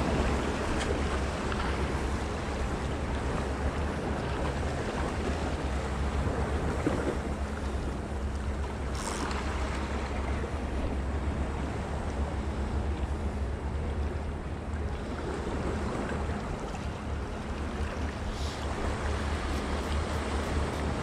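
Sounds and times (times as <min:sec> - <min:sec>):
sea waves washing against rocks: 0:15.3 - 0:21.0.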